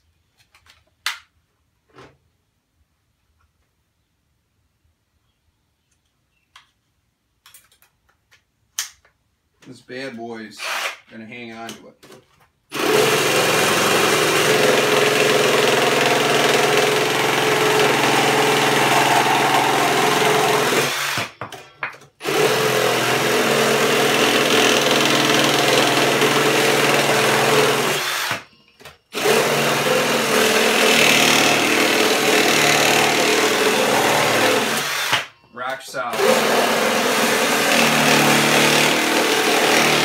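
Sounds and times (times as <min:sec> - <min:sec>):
cordless drill boring wood: 0:12.7 - 0:21.4, 0:22.2 - 0:28.4, 0:29.1 - 0:35.3, 0:36.1 - 0:40.0.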